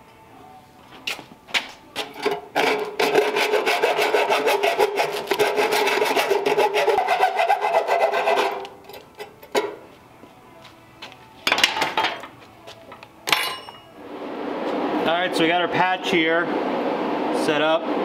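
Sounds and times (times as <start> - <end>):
hacksaw cutting through brass: 2.6 - 9.3
steady ringing note: 13.2 - 14.6.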